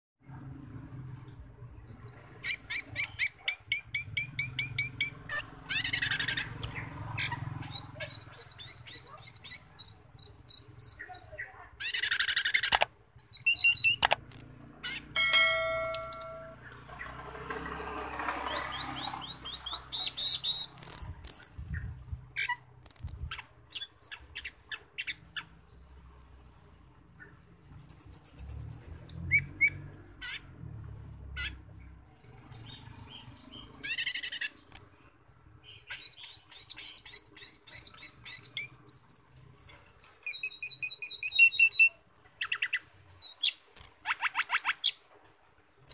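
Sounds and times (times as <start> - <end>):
starling singing: 2.0 - 26.4, 27.8 - 30.4, 35.7 - 44.8.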